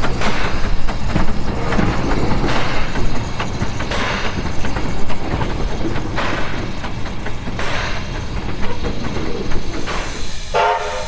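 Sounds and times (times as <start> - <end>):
steam exhaust bursts: 0.0 - 11.0
low rumble: 0.6 - 9.9
short steam whistle: 10.4 - 11.0.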